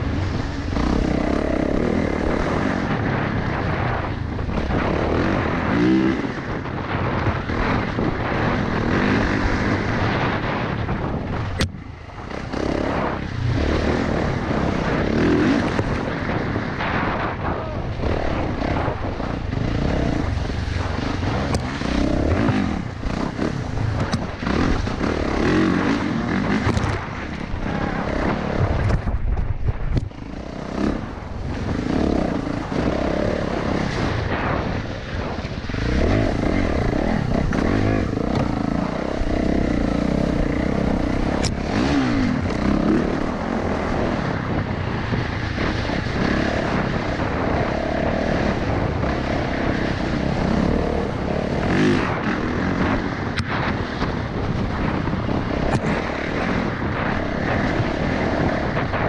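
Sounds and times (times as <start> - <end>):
dirt bike engine: 0.0 - 59.0.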